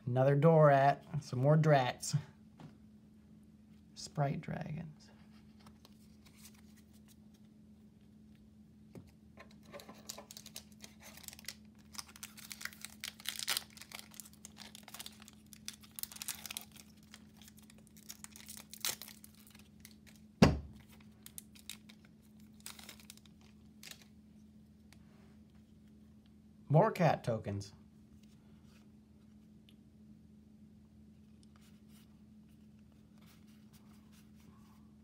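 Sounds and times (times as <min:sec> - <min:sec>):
faint low hum: 0:00.0 - 0:35.0
foil wrapper tearing and crinkling: 0:09.9 - 0:20.2, 0:20.8 - 0:24.1.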